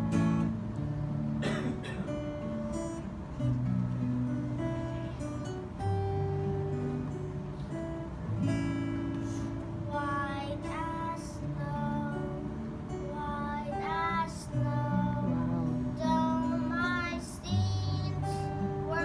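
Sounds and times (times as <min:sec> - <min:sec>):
acoustic guitar strumming: 0:00.0 - 0:19.0.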